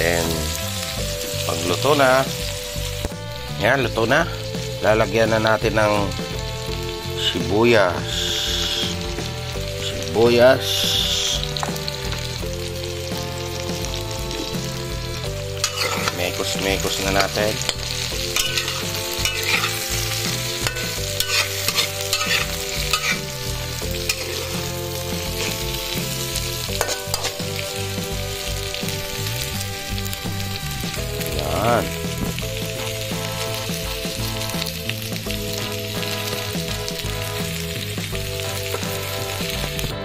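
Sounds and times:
vegetables sizzling in oil: 0:00.0 - 0:40.0
spatula scraping a pan: 0:08.0 - 0:10.0, 0:14.3 - 0:29.6.

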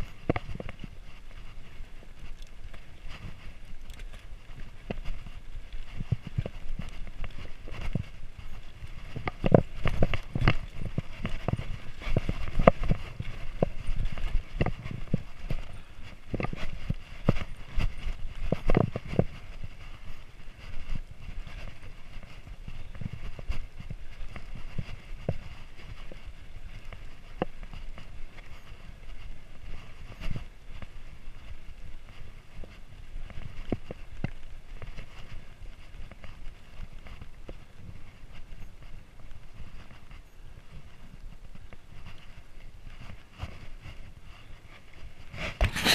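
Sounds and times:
bike rattling and clanking: 0:00.0 - 0:24.7.

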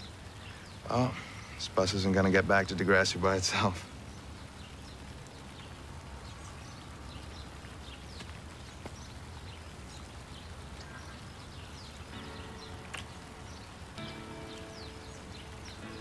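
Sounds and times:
soft music tones: 0:10.8 - 0:16.0.

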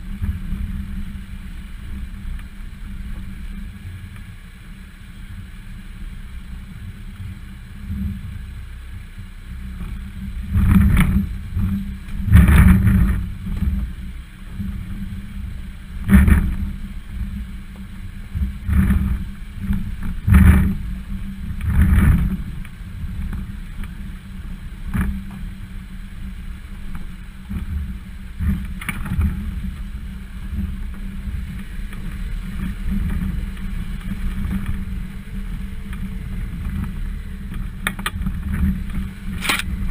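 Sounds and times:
car engine low rumble: 0:00.0 - 0:39.9
wheels knocking over rocks: 0:28.5 - 0:39.9.

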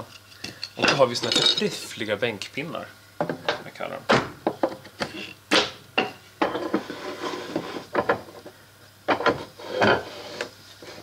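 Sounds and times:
wood rubbing and scraping: 0:06.6 - 0:07.9.

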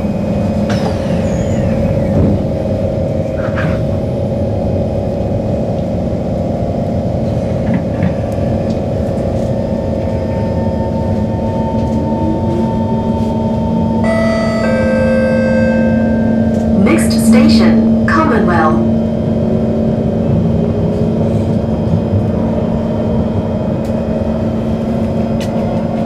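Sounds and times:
train electric hum: 0:00.0 - 0:26.0
train running rumble: 0:00.0 - 0:26.0
train doors closing knock: 0:00.6 - 0:02.6
rising motor whine: 0:10.8 - 0:16.8.

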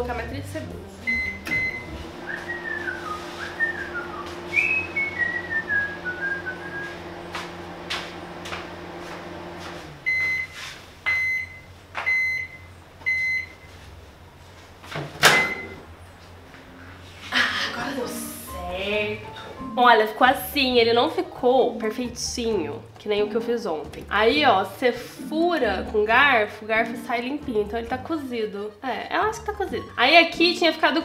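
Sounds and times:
microwave humming: 0:01.0 - 0:17.0
microwave keypad beep: 0:01.1 - 0:02.6, 0:10.1 - 0:13.7, 0:15.4 - 0:15.8
whistled notes: 0:01.1 - 0:07.0
microwave end beeps: 0:01.1 - 0:07.1, 0:10.0 - 0:13.7, 0:15.2 - 0:15.8.

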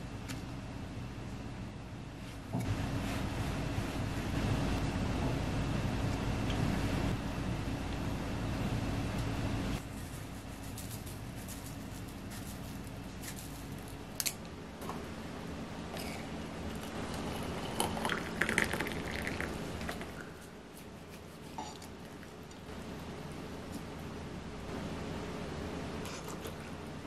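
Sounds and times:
water pouring into a glass mug: 0:17.4 - 0:20.2.

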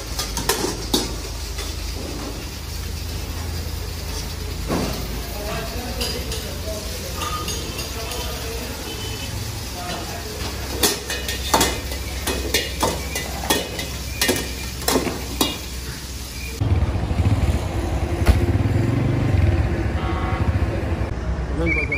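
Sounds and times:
metal ladle clanking in wok: 0:00.0 - 0:02.0, 0:06.0 - 0:08.3, 0:09.9 - 0:15.9
meat sizzling: 0:00.0 - 0:16.6.

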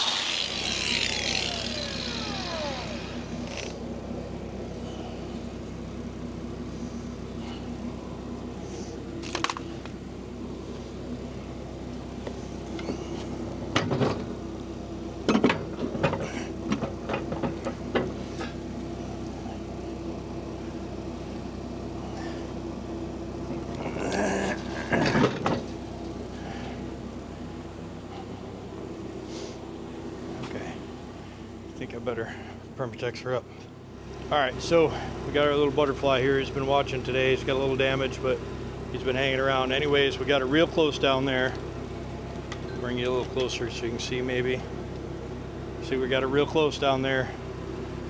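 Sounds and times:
low mechanical hum: 0:00.0 - 0:48.0
knocks and clatters of tools: 0:13.8 - 0:14.3, 0:25.0 - 0:25.8.

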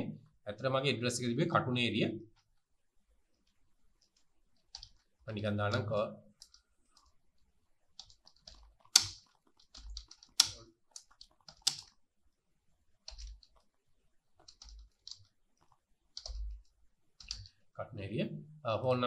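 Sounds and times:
keyboard typing: 0:03.4 - 0:07.2, 0:07.9 - 0:12.0, 0:13.0 - 0:13.8, 0:14.4 - 0:17.6.

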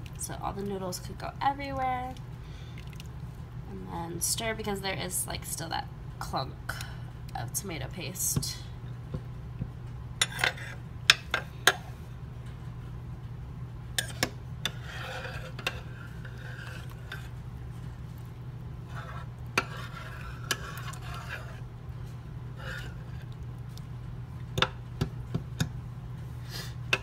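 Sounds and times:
low steady hum: 0:00.0 - 0:27.0
spoon stirring thick mixture: 0:14.0 - 0:21.7, 0:22.5 - 0:25.7.

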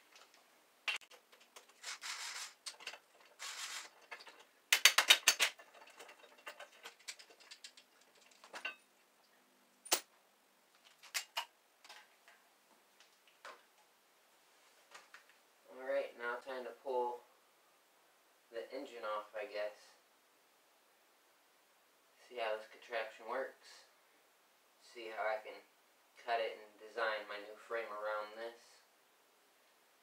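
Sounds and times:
hand tools clicking and scraping: 0:00.1 - 0:08.8.

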